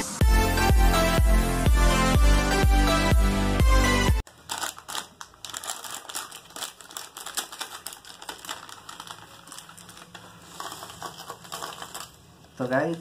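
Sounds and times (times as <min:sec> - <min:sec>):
plastic packet crinkling: 0:04.2 - 0:13.0.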